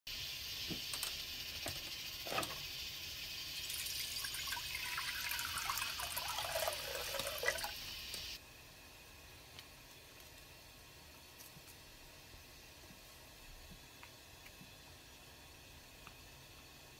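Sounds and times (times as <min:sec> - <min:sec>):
water pouring into a pot: 0:00.1 - 0:08.4.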